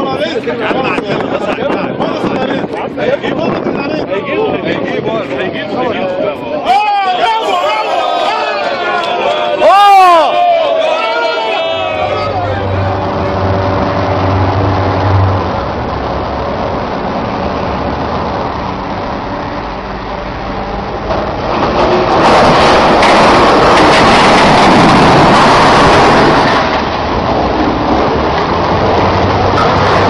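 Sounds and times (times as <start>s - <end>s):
rough rushing noise: 7.2s - 30.0s
boat engine running: 11.8s - 30.0s.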